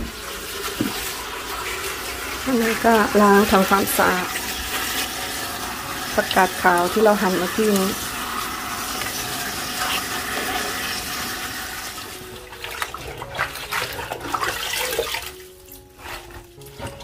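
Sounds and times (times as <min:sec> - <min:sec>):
tap water running and splashing: 0:00.0 - 0:17.0.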